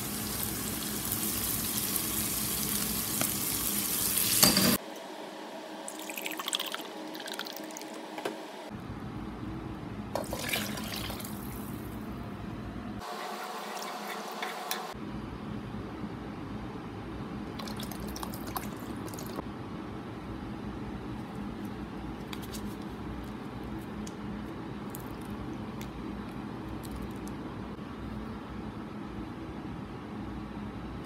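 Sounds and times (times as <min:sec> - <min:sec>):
milk pouring and splashing: 0:10.2 - 0:11.6, 0:17.6 - 0:19.4.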